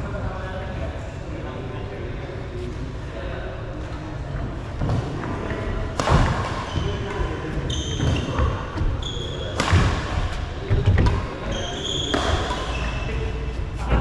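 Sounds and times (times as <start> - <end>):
shoes squeaking on court: 6.6 - 9.6, 11.0 - 13.2
racket striking shuttlecock: 9.6 - 10.2.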